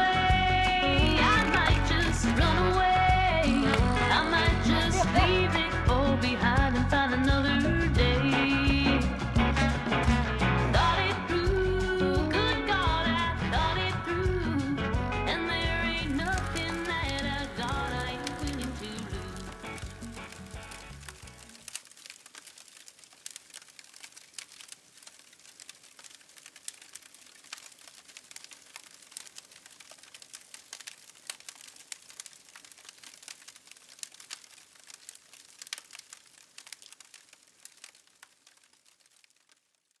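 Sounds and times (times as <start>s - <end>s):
wood fire crackling: 0.0s - 12.8s, 15.9s - 40.0s
song playing: 0.6s - 6.4s.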